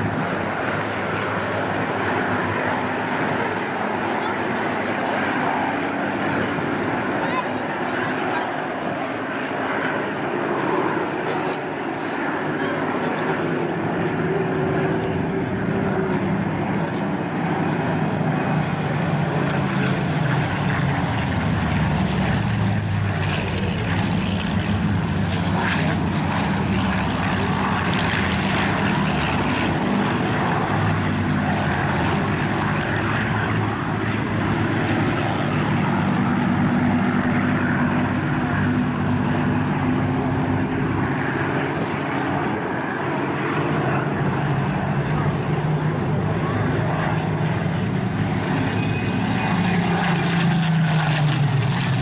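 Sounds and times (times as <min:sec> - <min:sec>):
fighter planes flying overhead: 0:00.0 - 0:52.0.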